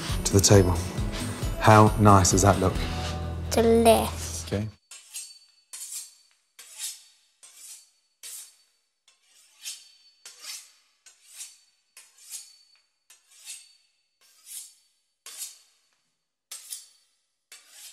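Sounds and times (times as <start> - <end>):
knife sawing through crisp pastry: 4.9 - 17.9.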